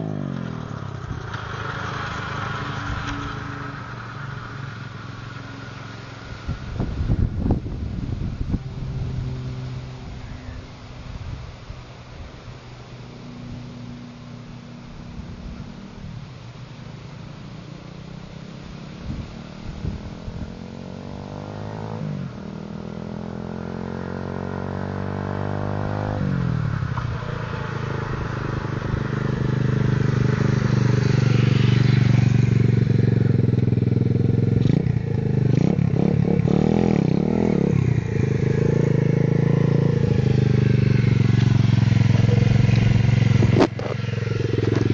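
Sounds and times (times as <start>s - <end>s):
motorbike engine revving: 17.7s - 44.9s.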